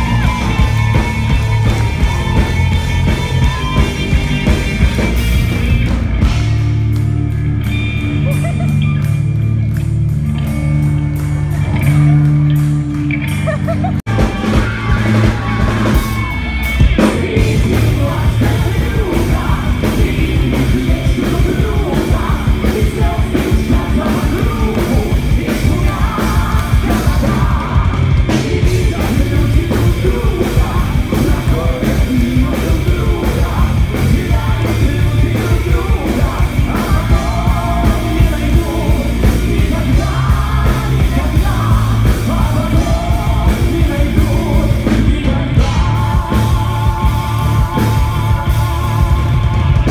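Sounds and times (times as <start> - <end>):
live rock band playing: 0.0 - 49.9
male and female voices singing: 17.0 - 49.9.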